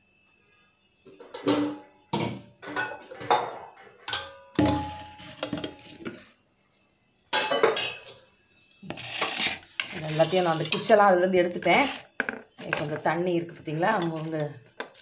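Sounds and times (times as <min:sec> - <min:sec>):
pots and dishes clinking: 0:01.1 - 0:06.2, 0:07.3 - 0:08.3.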